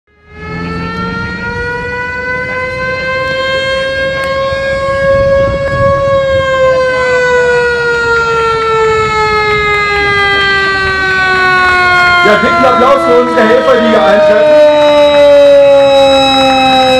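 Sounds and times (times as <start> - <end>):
siren wailing: 0.1 - 16.9
vehicle engines running: 0.2 - 5.8, 12.0 - 14.9.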